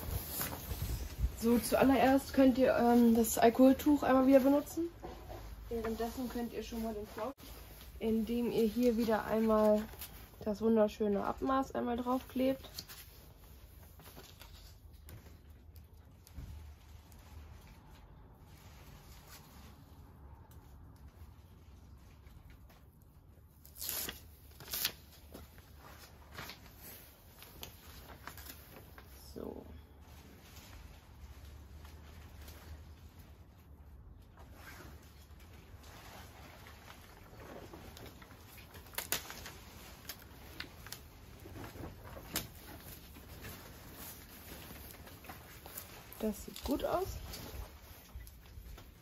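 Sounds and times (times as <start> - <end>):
paper rustling and crackling: 0.0 - 10.5, 11.4 - 49.0
paper liner peeling and rustling: 23.5 - 29.1, 34.6 - 49.0.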